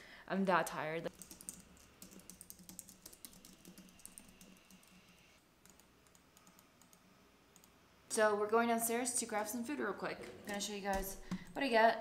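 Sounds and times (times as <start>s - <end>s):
typing on keyboard: 1.1s - 7.0s.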